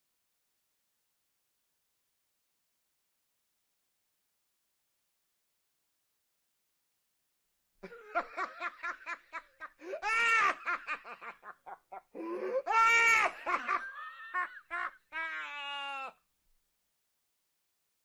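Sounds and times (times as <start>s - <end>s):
person laughing loudly: 7.8s - 16.1s.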